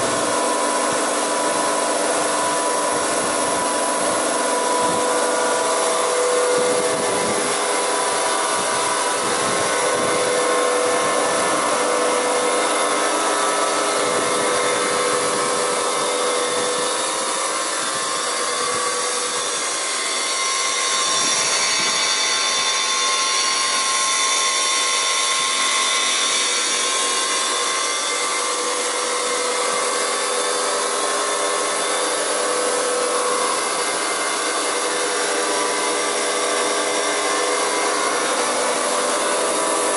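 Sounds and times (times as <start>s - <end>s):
planer-moulder machine humming: 0.0s - 39.9s.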